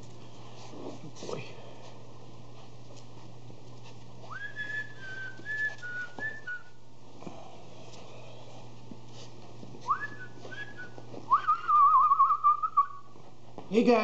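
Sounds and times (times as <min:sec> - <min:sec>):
person whistling: 0:04.3 - 0:06.8, 0:09.9 - 0:13.1.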